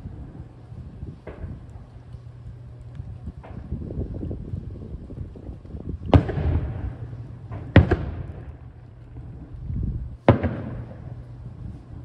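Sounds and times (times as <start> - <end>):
firework booms echoing: 6.1 - 8.7, 10.2 - 11.2.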